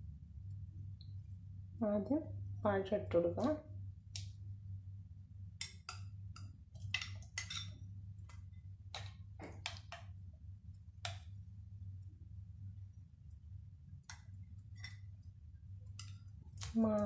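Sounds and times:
faint low hum: 0:00.0 - 0:17.0
metal spoon clinking on glass bowls: 0:05.6 - 0:07.8.

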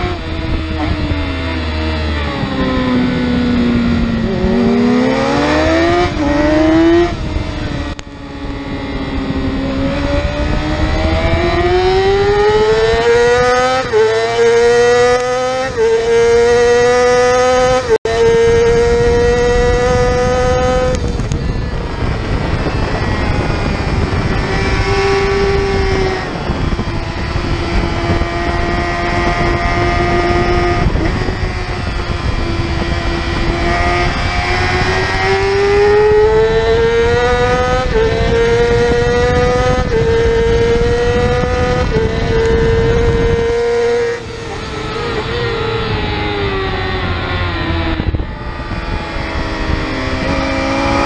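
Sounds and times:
motorcycle engine revving: 0:00.0 - 0:51.0
wind rush: 0:00.0 - 0:51.0.

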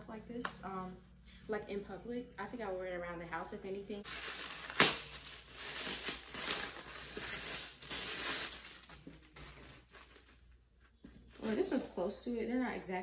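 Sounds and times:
loud plastic crackle: 0:04.0 - 0:10.4
plastic packaging crinkling: 0:04.0 - 0:10.6.

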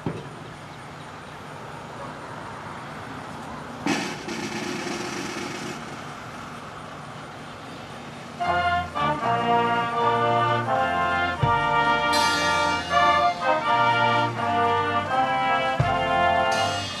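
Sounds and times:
outdoor background noise: 0:00.0 - 0:17.0
loud hiss: 0:03.9 - 0:08.5, 0:10.7 - 0:17.0.

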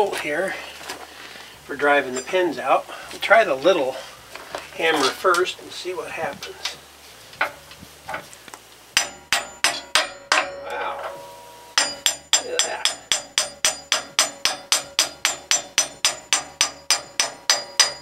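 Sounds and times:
hammer striking steel bolt: 0:09.0 - 0:18.0.

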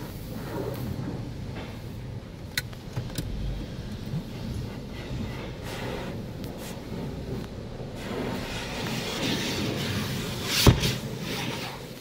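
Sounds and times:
pressure wand spraying car: 0:04.7 - 0:12.0.

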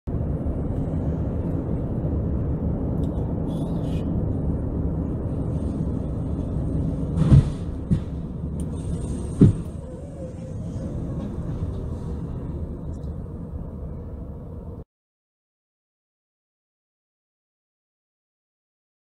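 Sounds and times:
car road and engine rumble: 0:00.1 - 0:14.9
vehicle crash bang: 0:07.1 - 0:09.9.

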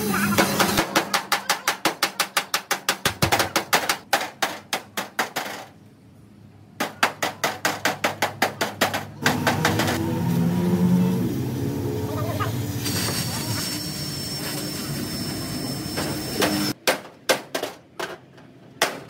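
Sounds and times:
rapid hammer blows on metal: 0:00.0 - 0:05.6.

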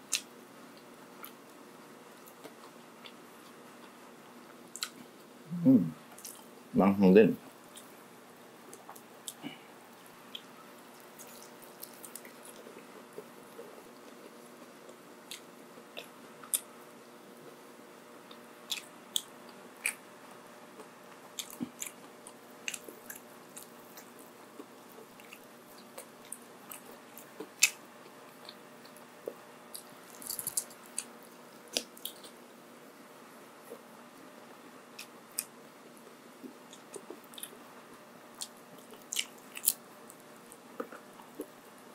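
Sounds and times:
person chewing food: 0:02.1 - 0:04.0, 0:04.7 - 0:05.1, 0:06.1 - 0:06.5, 0:08.7 - 0:16.7, 0:18.3 - 0:20.0, 0:20.7 - 0:32.4, 0:34.5 - 0:41.7.

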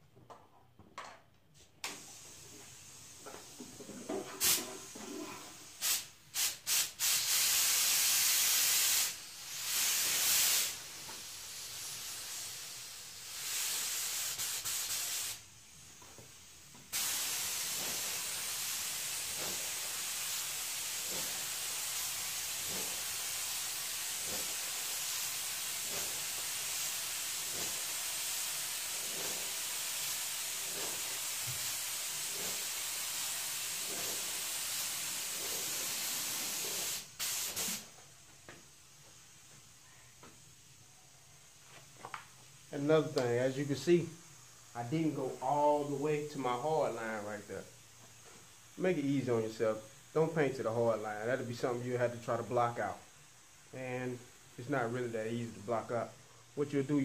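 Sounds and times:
spray gun hissing: 0:01.9 - 0:38.0, 0:42.8 - 0:51.8.

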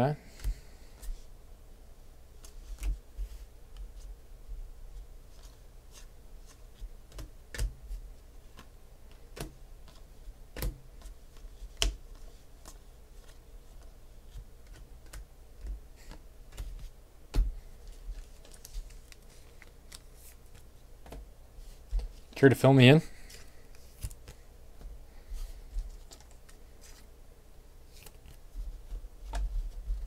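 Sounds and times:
steady low hum: 0:00.0 - 0:30.0
cards clicking and tapping: 0:08.5 - 0:21.2, 0:26.0 - 0:27.0.

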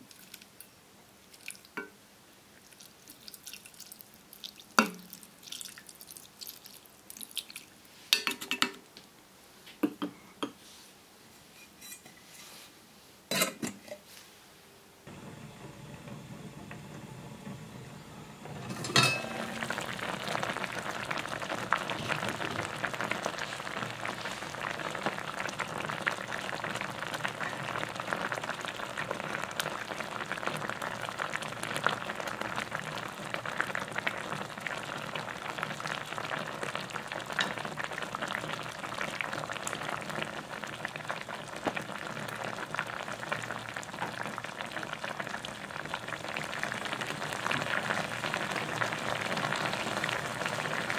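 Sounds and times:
sauce bubbling in a pot: 0:01.2 - 0:01.9, 0:02.6 - 0:07.8, 0:15.1 - 0:50.9
metal pot lid clink: 0:13.3 - 0:14.0, 0:18.7 - 0:19.4.

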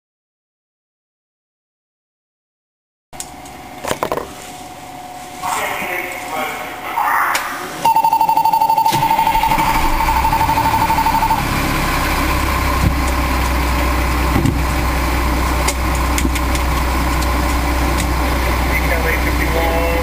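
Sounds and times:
rapid warning beeps: 0:07.8 - 0:11.5
diesel engine starting and idling: 0:07.8 - 0:20.0.

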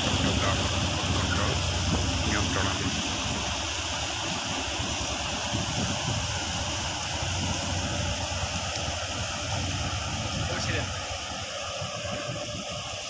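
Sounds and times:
low rumble: 0:00.0 - 0:13.0
water rushing: 0:00.0 - 0:13.0.

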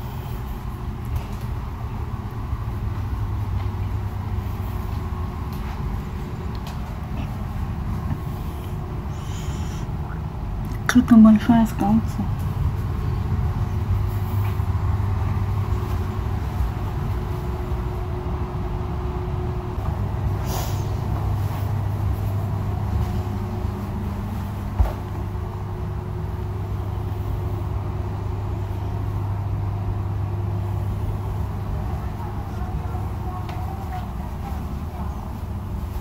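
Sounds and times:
train car hum: 0:00.0 - 0:36.0
short hiss: 0:20.4 - 0:21.0.

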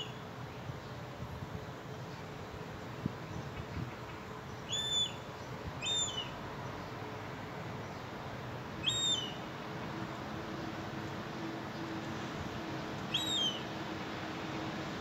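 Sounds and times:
gull whistled calls: 0:04.7 - 0:05.2, 0:05.8 - 0:06.3, 0:08.8 - 0:09.4, 0:13.1 - 0:13.6.

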